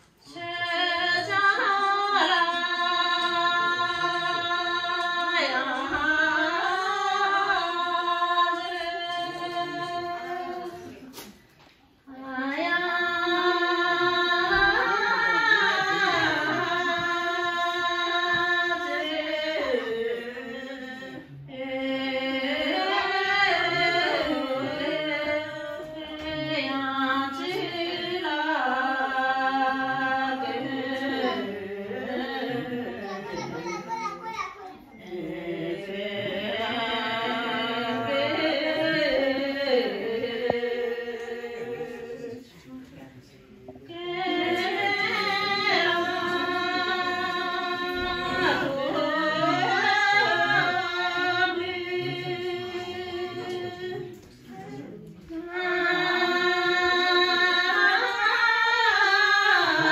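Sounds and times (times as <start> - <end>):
person singing slow melody: 35.0 - 42.6, 43.9 - 57.2.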